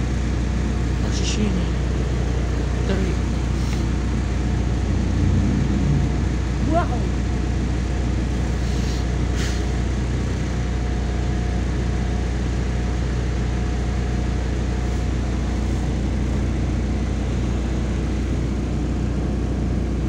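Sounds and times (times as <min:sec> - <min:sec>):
bus engine idling: 0:00.0 - 0:20.0
brief hiss: 0:08.6 - 0:09.7.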